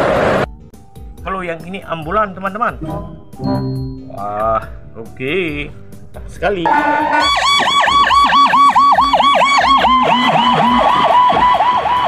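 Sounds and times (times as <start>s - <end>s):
ambulance siren yelping: 6.6s - 12.0s.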